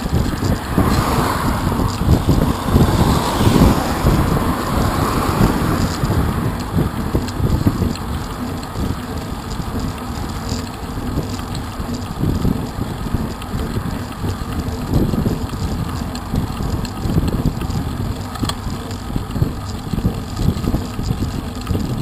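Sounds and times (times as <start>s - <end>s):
wind rumbling on microphone: 0.0s - 22.0s
car driving past: 0.4s - 6.8s.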